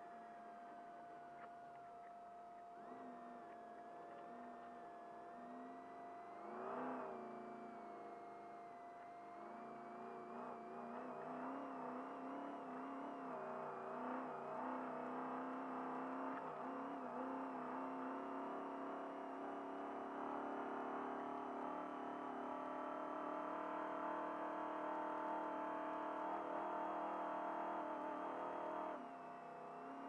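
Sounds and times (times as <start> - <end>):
truck engine accelerating: 10.4 - 29.0.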